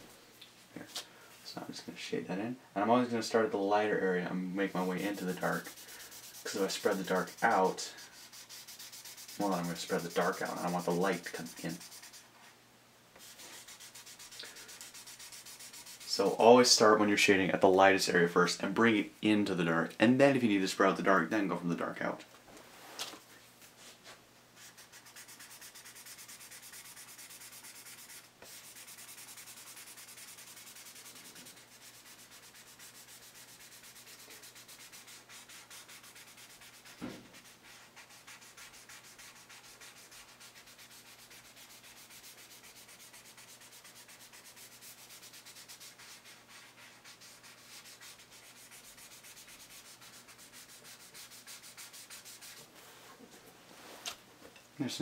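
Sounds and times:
pencil scratching on paper: 4.7s - 12.2s, 13.2s - 16.2s, 24.6s - 52.7s
soft thump: 37.0s - 37.3s.

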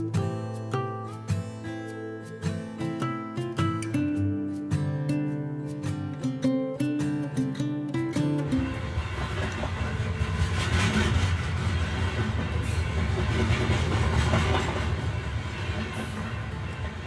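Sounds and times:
model trains rumbling on track: 8.4s - 17.0s.

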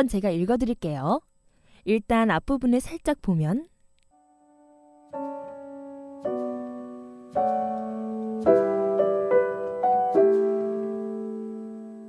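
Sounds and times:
soft solo piano music: 5.1s - 12.0s.

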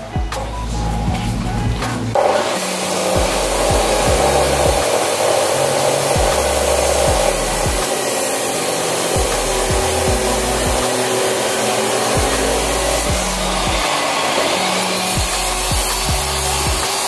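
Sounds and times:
chop saw grinding through steel: 1.8s - 17.0s.

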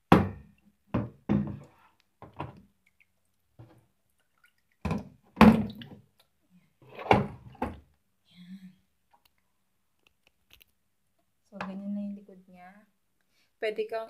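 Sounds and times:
plastic tank knocks and thumps: 0.1s - 2.6s, 4.8s - 5.9s.

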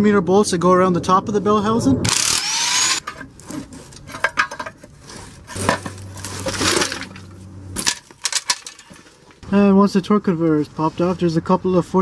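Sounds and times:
air wrench whining: 2.1s - 3.3s.

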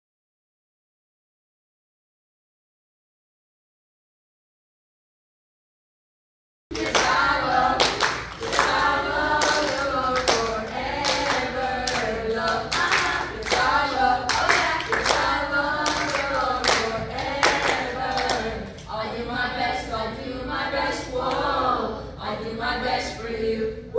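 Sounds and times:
children and adults singing: 6.7s - 23.9s.

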